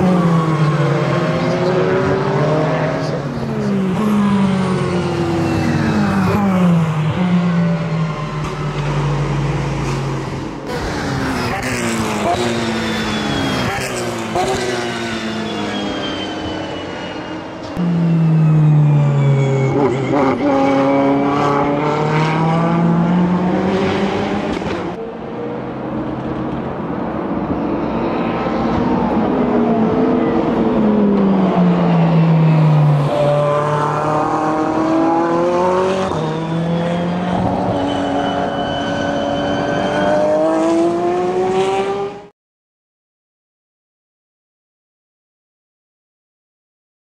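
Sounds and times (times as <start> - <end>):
race car engines shifting gears: 0.0 - 17.9, 19.4 - 25.0.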